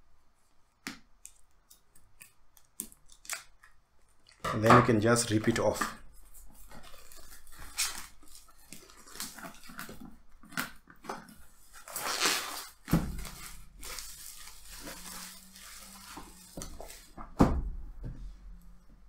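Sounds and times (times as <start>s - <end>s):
plastic shrink-wrap crinkling: 5.0s - 17.2s.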